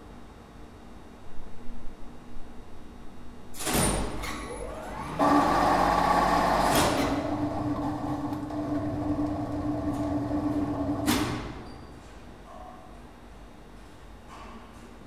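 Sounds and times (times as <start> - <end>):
winch motor whining: 4.5 - 11.2.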